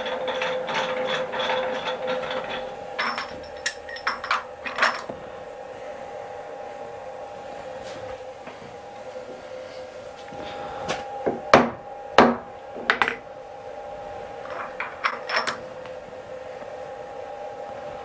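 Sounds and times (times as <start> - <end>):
machine hum: 0.0 - 18.0
tools clinking on vise: 3.0 - 5.1
hammer knocking on metal vise: 11.3 - 13.2.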